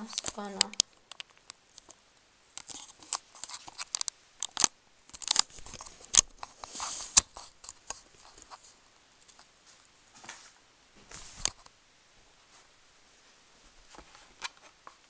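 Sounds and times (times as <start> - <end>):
plastic packaging crinkling: 0.0 - 1.9, 2.6 - 8.7
plastic snapping: 2.6 - 6.5.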